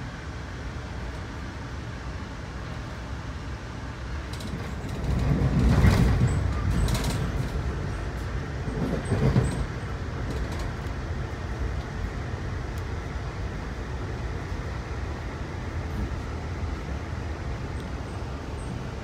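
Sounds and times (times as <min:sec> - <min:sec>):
train wheels rumbling on rail: 0:00.0 - 0:19.0
train clatter: 0:04.1 - 0:13.3.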